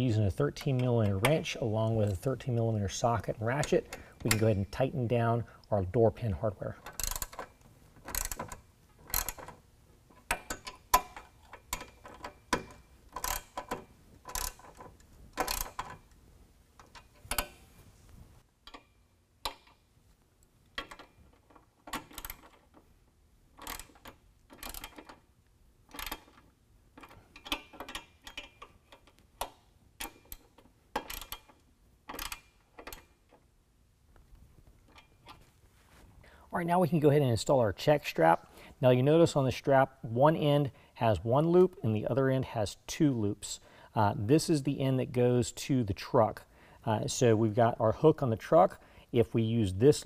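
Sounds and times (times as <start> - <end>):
socket ratchet clicking: 6.8 - 16.2, 16.8 - 17.6, 20.7 - 22.8, 23.6 - 25.3, 25.9 - 33.4.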